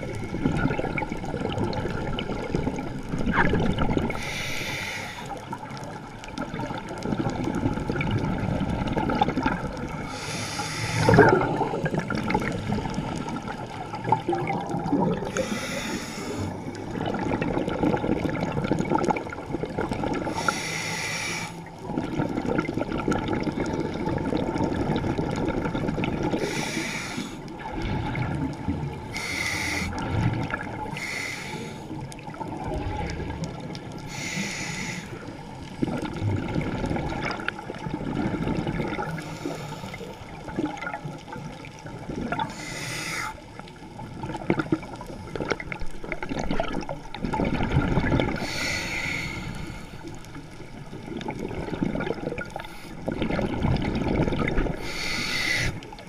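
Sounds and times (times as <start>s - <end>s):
bubbling exhales: 0.0s - 43.5s, 50.9s - 56.0s
regulator hissing inhales: 4.2s - 5.4s, 10.1s - 11.2s, 15.3s - 16.6s, 20.3s - 21.6s, 26.4s - 27.4s, 29.1s - 30.0s, 30.9s - 32.0s, 34.1s - 35.3s, 39.2s - 40.1s, 42.5s - 43.4s, 48.4s - 50.1s, 54.8s - 55.9s.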